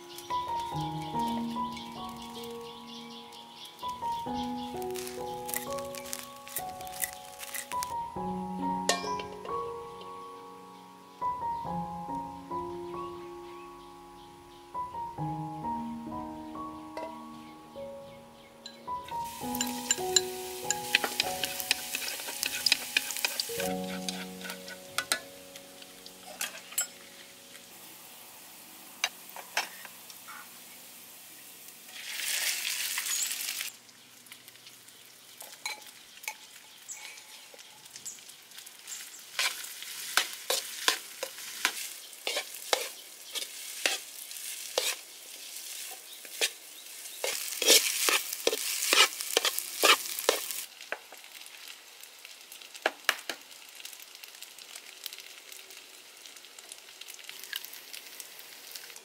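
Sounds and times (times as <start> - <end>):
rice sizzling in a wok: 0.0 - 59.0
spatula scraping and clacking on wok: 19.5 - 25.3, 26.2 - 27.0, 38.9 - 50.7.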